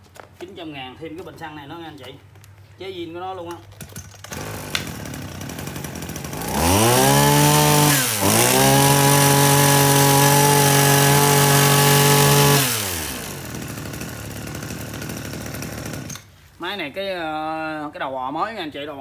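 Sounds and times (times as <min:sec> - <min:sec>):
brush cutter engine revving: 0:04.2 - 0:16.3.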